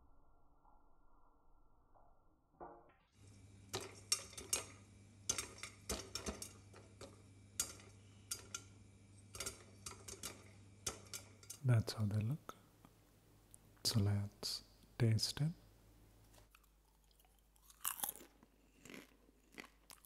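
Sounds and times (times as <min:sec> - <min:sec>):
popcorn popping in a pan: 0:02.6 - 0:12.2
low hum and faint hiss: 0:03.2 - 0:19.9.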